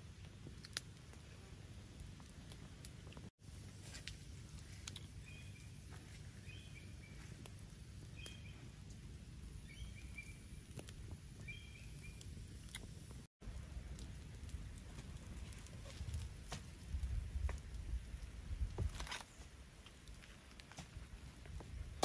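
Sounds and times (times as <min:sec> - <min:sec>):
low steady rumble: 0:00.0 - 0:18.8
wood fire crackling and popping: 0:00.0 - 0:22.0
bird chirping: 0:05.2 - 0:05.8, 0:06.4 - 0:07.4, 0:08.1 - 0:08.7, 0:09.6 - 0:10.7, 0:11.4 - 0:12.4.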